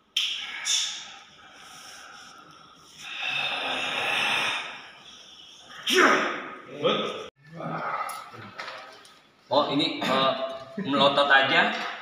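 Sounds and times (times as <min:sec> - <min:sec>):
man breathing heavily: 0:00.4 - 0:05.1.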